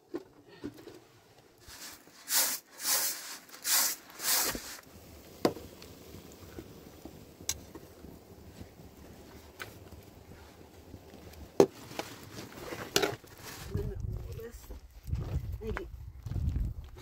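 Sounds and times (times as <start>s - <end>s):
rice pouring into basin: 1.6s - 4.9s.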